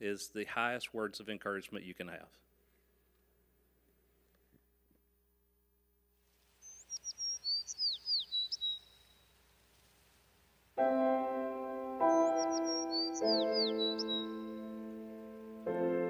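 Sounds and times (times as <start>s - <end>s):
bird chirps and whistles: 6.6s - 9.3s, 12.1s - 14.6s
gentle music with held notes: 10.8s - 16.0s.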